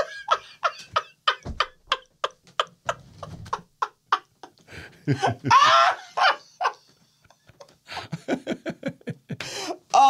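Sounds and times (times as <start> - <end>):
men laughing breathlessly: 0.0 - 9.9.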